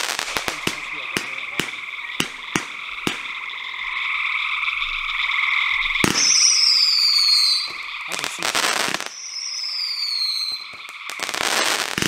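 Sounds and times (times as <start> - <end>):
firework thump: 0.0 - 3.5
fireworks pops: 0.0 - 4.6, 6.0 - 12.0
falling firework whistle: 0.0 - 12.0
frogs trilling: 0.0 - 12.0.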